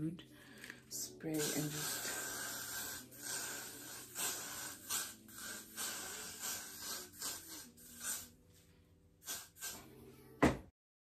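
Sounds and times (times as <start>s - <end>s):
aerosol hairspray hissing: 1.0s - 8.4s, 9.2s - 9.9s.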